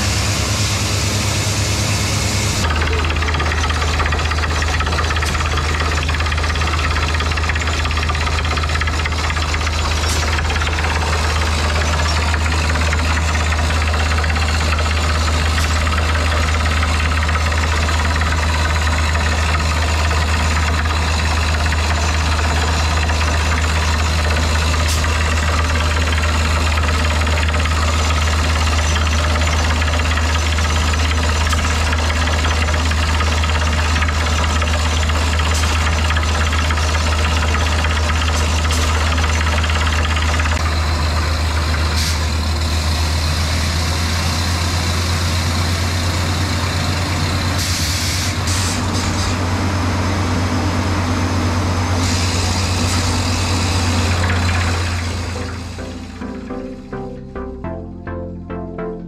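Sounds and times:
drilling rig machine drone: 0.0 - 58.9
knocking rattle: 2.7 - 40.4.

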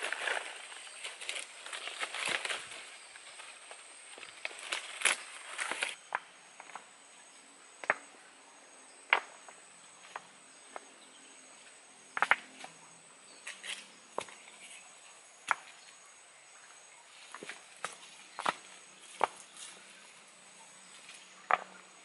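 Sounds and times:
high insect drone: 0.0 - 22.0
stones clacking together: 21.5 - 21.8.

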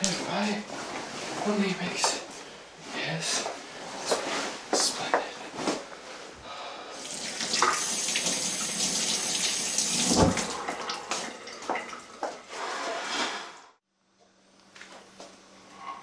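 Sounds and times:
faucet running over hands: 7.0 - 12.2.

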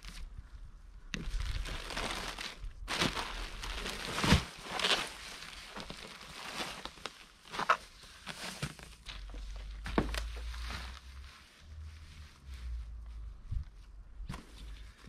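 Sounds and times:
plastic wrapping crinkling: 1.2 - 11.9
foil insulation rustling and crackling: 1.2 - 12.4.

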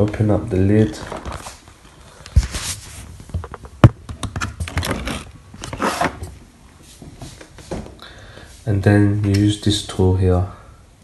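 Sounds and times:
rustling: 0.0 - 3.8.

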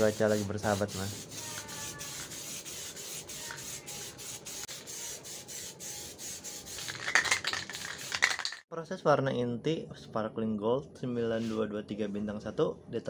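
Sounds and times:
aerosol spray can hissing: 0.0 - 8.6.

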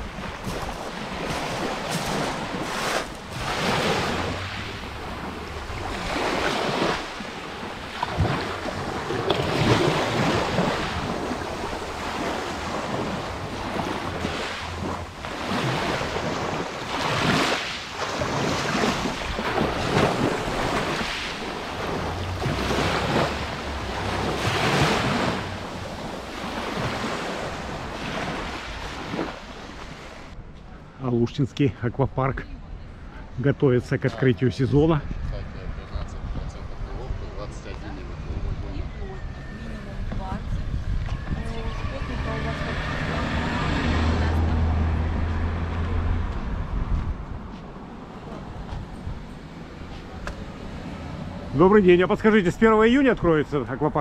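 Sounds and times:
waves washing on pebble beach: 0.0 - 30.4
wind buffeting microphone: 0.0 - 30.8, 34.4 - 51.6.

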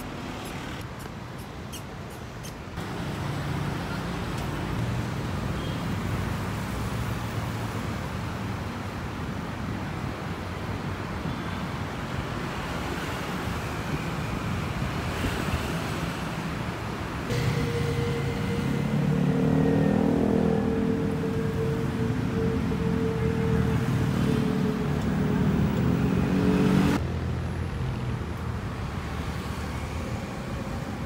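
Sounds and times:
passing cars and buses: 0.0 - 31.0
held tone: 17.3 - 25.7.

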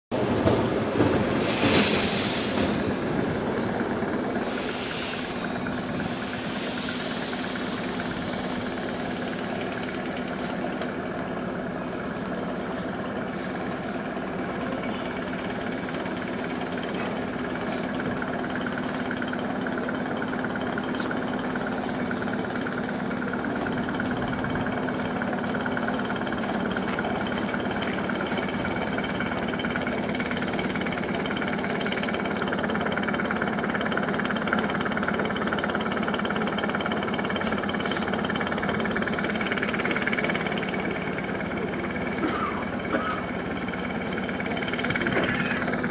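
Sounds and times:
train electrical hum: 0.2 - 45.9
air hissing bursts: 1.4 - 2.9, 4.4 - 9.8.

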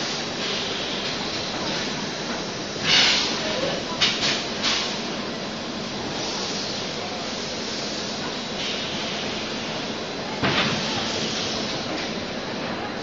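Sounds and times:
compressed air hissing: 2.6 - 3.4, 6.0 - 9.8.

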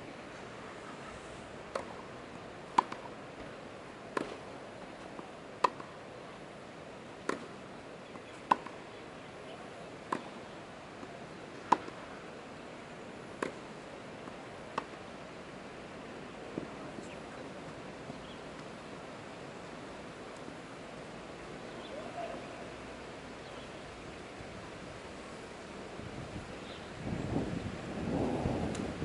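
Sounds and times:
steady hiss: 0.0 - 29.0
tennis ball hit by rackets: 1.7 - 2.0, 2.7 - 3.1, 4.1 - 4.4, 5.6 - 5.9, 7.2 - 7.5, 8.5 - 8.8, 10.1 - 10.4, 11.6 - 12.0, 13.4 - 13.6, 14.7 - 15.0.

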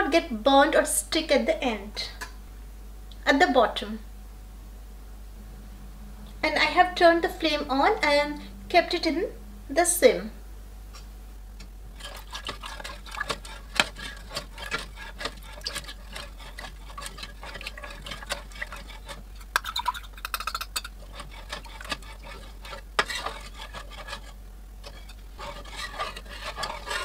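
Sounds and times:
metal spoon stirring in pot: 11.9 - 27.0.

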